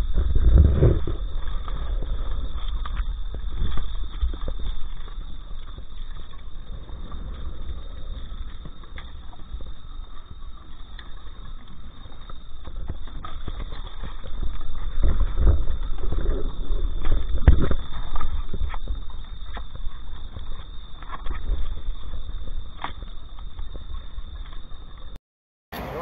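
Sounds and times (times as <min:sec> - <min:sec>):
fish and lobsters knocking in cooler: 0:12.4 - 0:23.4.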